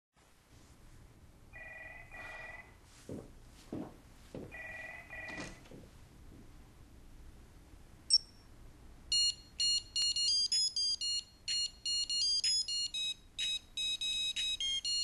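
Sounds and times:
telephone double ring: 4.5 - 5.6.

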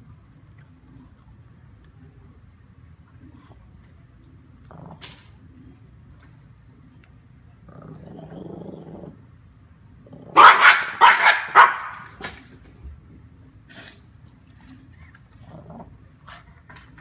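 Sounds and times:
small dog growling: 4.6 - 5.3, 7.6 - 9.3, 15.3 - 16.0
dog barking and snarling: 10.1 - 12.2.

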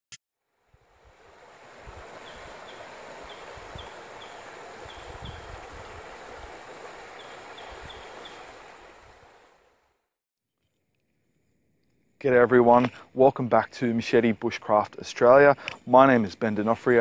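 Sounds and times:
water running over rocks: 1.0 - 9.6.

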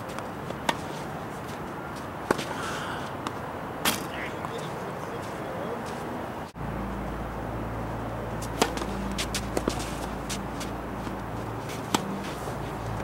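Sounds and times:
tennis ball knocks: 8.5 - 9.8.

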